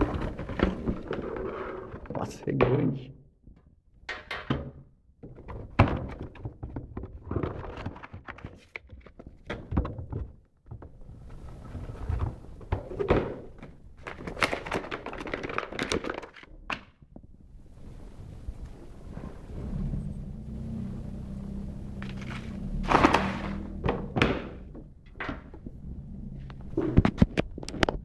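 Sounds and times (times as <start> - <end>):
paper rustling: 14.0 - 16.9, 22.0 - 23.8
cardboard box being handled: 22.0 - 23.8.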